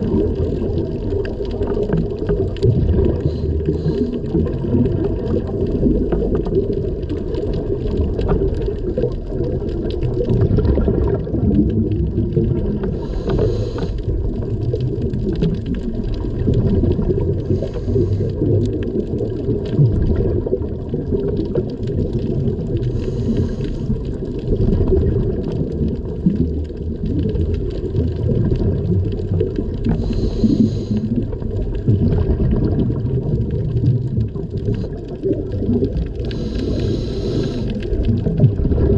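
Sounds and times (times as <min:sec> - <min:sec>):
underwater rumble and bubbles: 0:00.0 - 0:38.9
scuba regulator hisses: 0:30.0 - 0:31.1, 0:36.3 - 0:37.7.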